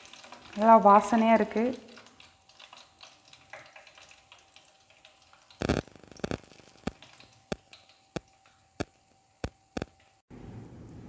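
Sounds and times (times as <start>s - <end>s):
frying oil sizzling: 0.0s - 11.0s.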